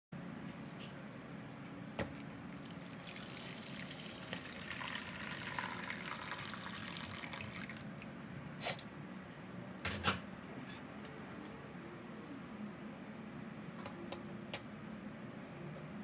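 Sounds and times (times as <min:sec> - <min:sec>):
water pouring into wok: 0:02.5 - 0:07.9.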